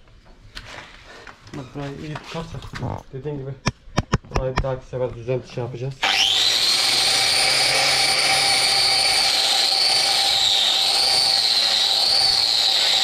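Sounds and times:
angle grinder whining: 0:06.0 - 0:13.0.

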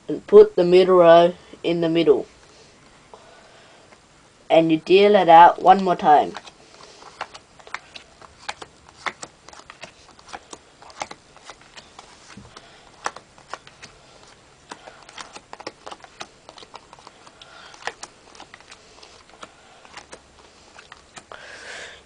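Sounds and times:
playing cards clicking onto carpet: 0:06.4 - 0:21.3.

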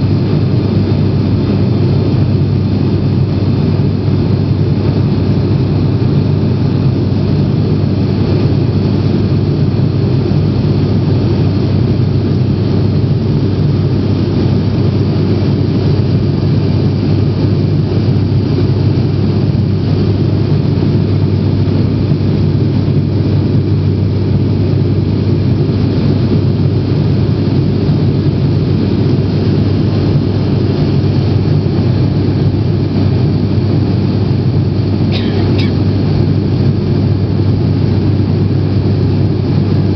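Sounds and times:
aircraft engine drone in cabin: 0:00.0 - 0:39.9.

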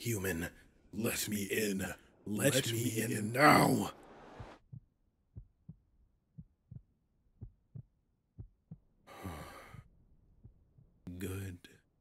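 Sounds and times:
heartbeat thumps: 0:04.1 - 0:11.0
breath: 0:09.1 - 0:09.9.

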